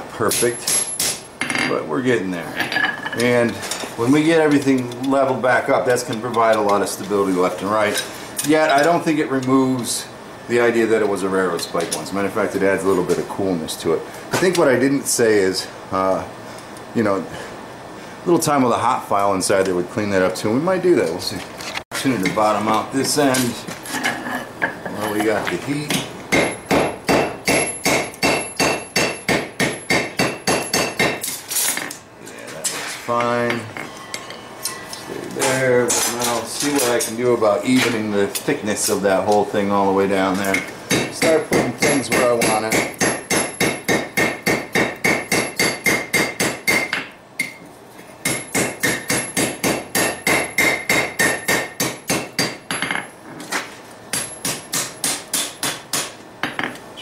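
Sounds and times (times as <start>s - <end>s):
hammer striking metal on anvil: 0.3s - 1.8s, 25.9s - 31.4s, 40.9s - 47.6s, 48.2s - 53.0s, 54.1s - 56.8s.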